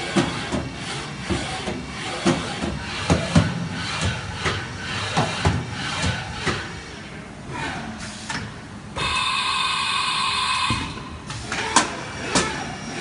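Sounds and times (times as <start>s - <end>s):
machine clunks and knocks: 0.1s - 6.7s
tool changer whine: 9.0s - 11.1s.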